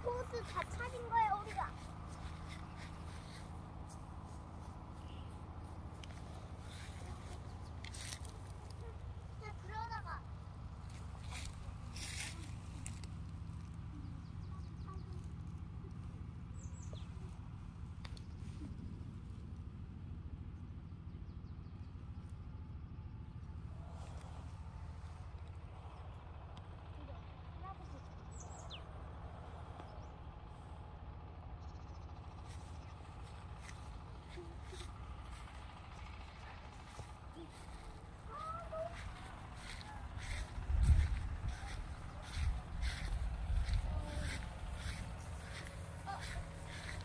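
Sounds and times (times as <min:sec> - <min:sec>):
bird chirp: 0:16.5 - 0:17.4
low rumble: 0:34.9 - 0:47.0.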